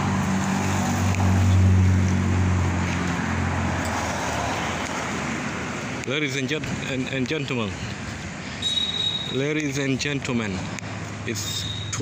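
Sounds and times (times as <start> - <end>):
car engine hum: 0.0 - 8.6
tyre and road noise: 0.0 - 12.0.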